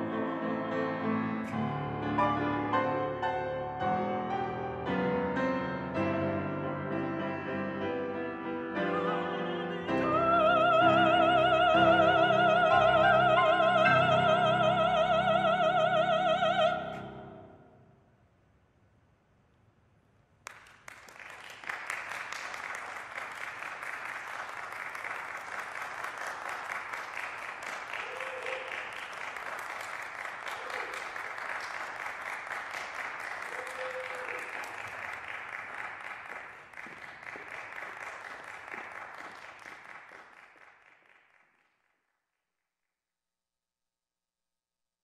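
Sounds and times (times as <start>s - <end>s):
applause: 20.4s - 42.4s.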